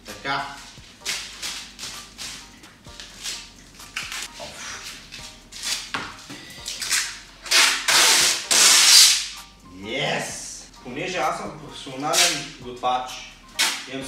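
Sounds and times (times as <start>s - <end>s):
packing tape ripping off roll: 1.0s - 9.4s, 12.1s - 12.6s, 13.6s - 14.0s.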